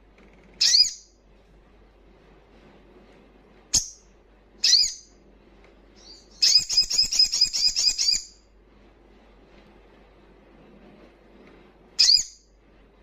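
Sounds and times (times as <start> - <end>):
bird chirping and trilling: 0.6 - 1.2, 3.7 - 5.2, 6.0 - 8.4, 12.0 - 12.5.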